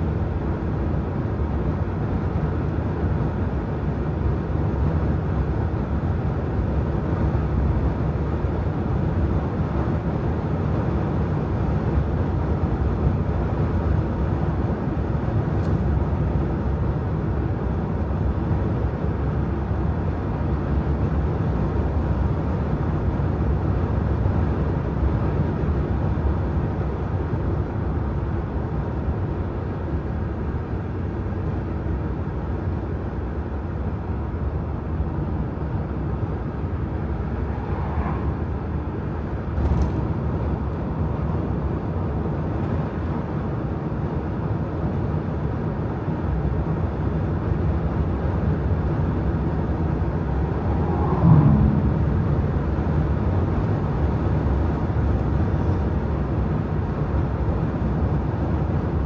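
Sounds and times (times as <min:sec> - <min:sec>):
car driving at highway speed: 0:00.0 - 0:59.0
brief pitched sound: 0:50.4 - 0:52.6.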